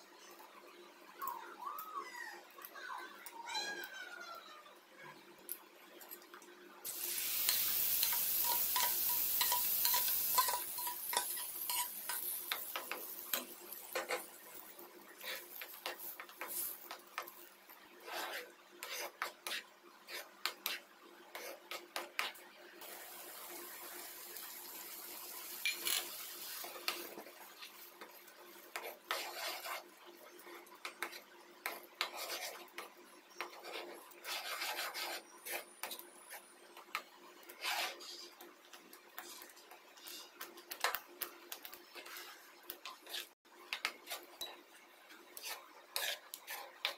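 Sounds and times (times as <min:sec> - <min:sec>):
loud sizzling hiss: 0:06.9 - 0:13.9, 0:22.8 - 0:27.2
spatula scraping a pan: 0:06.9 - 0:22.4, 0:25.6 - 0:38.4, 0:39.2 - 0:41.0, 0:41.6 - 0:44.6, 0:45.3 - 0:46.9.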